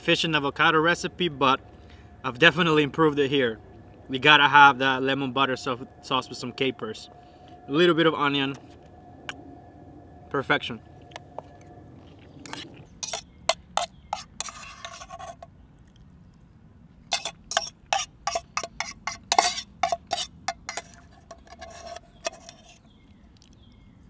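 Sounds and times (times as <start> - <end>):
fork clinking against metal pot: 12.5 - 15.4, 17.1 - 22.7.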